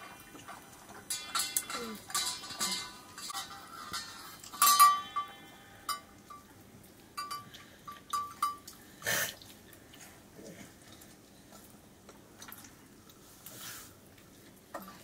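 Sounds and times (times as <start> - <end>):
light metallic clinks: 1.1 - 6.5.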